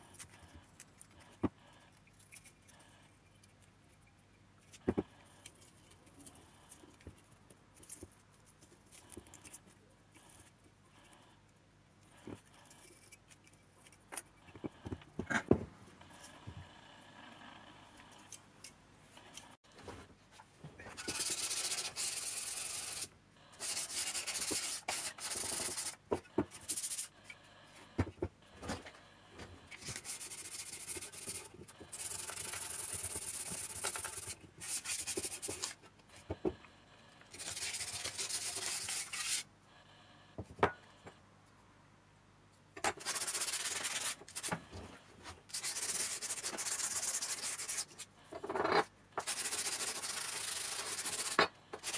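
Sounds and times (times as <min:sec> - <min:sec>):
sanding sponge on metal: 0:21.0 - 0:26.0, 0:29.9 - 0:35.7, 0:37.4 - 0:39.4, 0:43.0 - 0:44.5, 0:45.5 - 0:48.0, 0:49.2 - 0:51.9.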